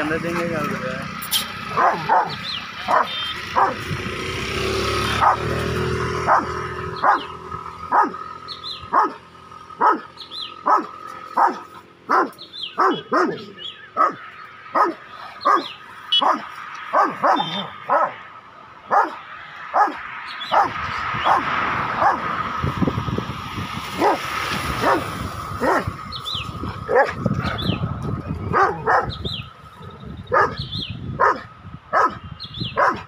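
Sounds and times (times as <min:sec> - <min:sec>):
dog barking: 0:01.7 - 0:03.9, 0:05.2 - 0:05.6, 0:06.2 - 0:07.3, 0:07.9 - 0:08.2, 0:08.9 - 0:09.2, 0:09.8 - 0:14.2, 0:14.8 - 0:18.2, 0:18.9 - 0:22.3, 0:24.0 - 0:24.2, 0:24.8 - 0:25.0, 0:25.6 - 0:25.9, 0:26.9 - 0:27.2, 0:28.5 - 0:29.2, 0:30.3 - 0:30.6, 0:31.2 - 0:32.2, 0:32.8 - 0:33.0.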